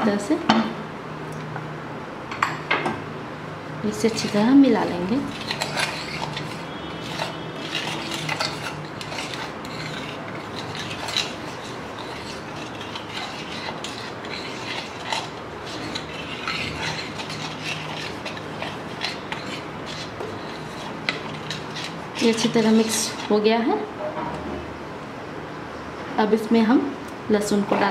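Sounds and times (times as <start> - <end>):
spoon scraping paste in bowl: 3.9 - 23.5.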